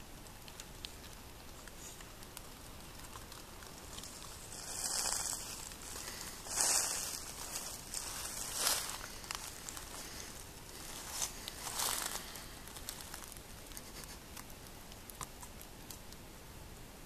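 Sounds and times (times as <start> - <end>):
dry leaves crunching underfoot: 3.3 - 13.4.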